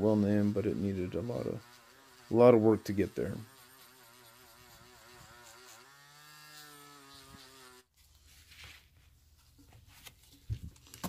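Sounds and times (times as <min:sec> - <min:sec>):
rotary tool buzzing whine: 0:00.0 - 0:07.9.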